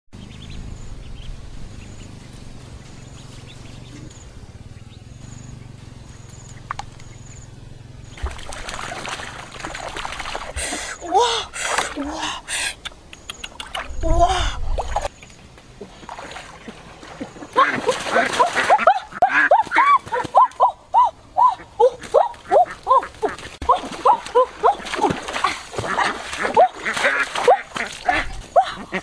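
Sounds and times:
low outdoor rumble: 0.2s - 26.6s
water splashing and sloshing: 8.0s - 12.5s, 13.4s - 29.0s.

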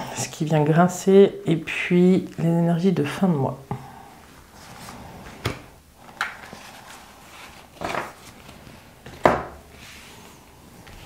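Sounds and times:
cards sliding and slapping: 4.6s - 9.2s.

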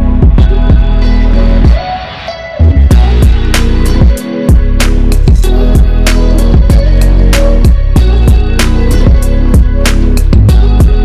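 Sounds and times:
deep bass: 0.0s - 1.8s, 2.6s - 11.0s
background music with drum beat: 0.0s - 11.0s.

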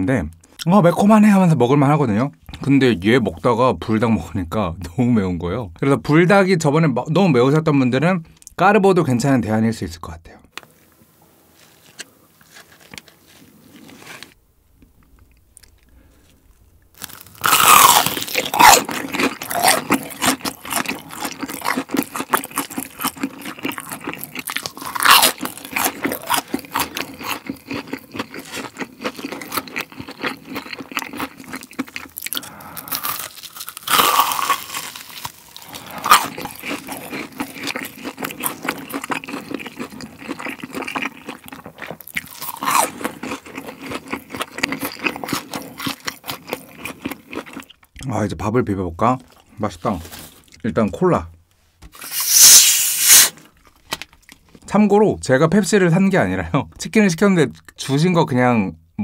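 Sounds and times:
crunching and chewing crispy food: 15.0s - 48.0s, 51.9s - 54.7s.

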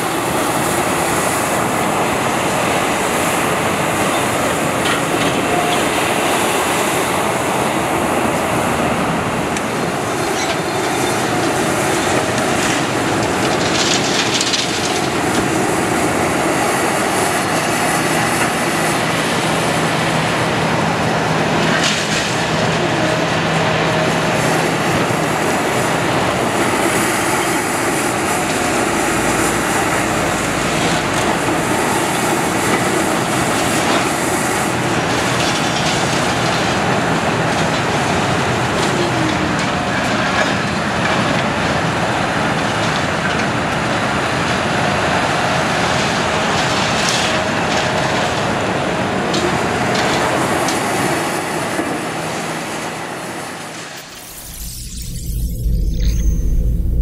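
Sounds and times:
excavator engine and hydraulics: 0.0s - 57.0s
high hiss or screech: 53.9s - 57.0s.

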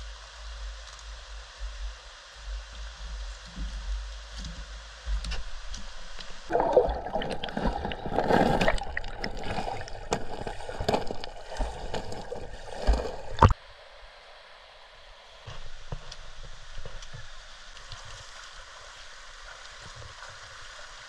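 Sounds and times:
stream water gurgling: 5.3s - 21.0s
small water splashes: 5.4s - 13.6s.

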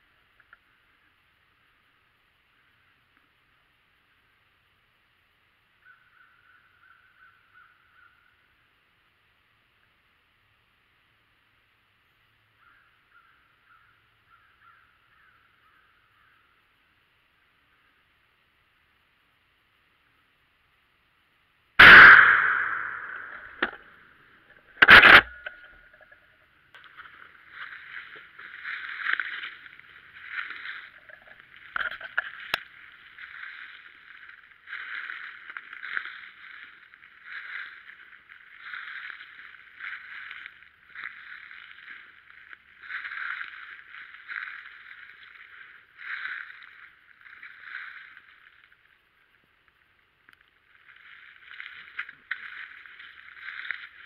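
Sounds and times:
shotgun shot: 21.8s - 23.8s
footsteps crunching through dry leaves: 26.8s - 49.4s, 50.5s - 54.0s.

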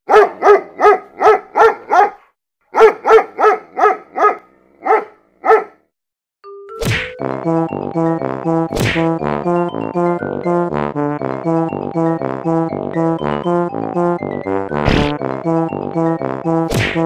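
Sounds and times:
dog barking: 0.0s - 5.8s.

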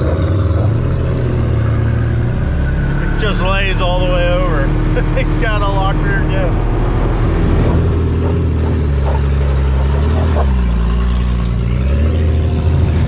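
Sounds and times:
car engine running: 0.0s - 13.0s.

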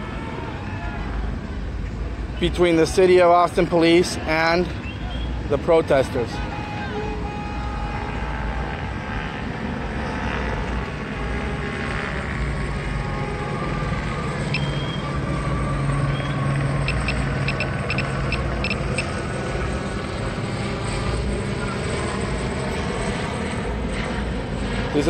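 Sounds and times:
outdoor background noise: 0.0s - 25.0s
low engine hum: 6.2s - 25.0s.

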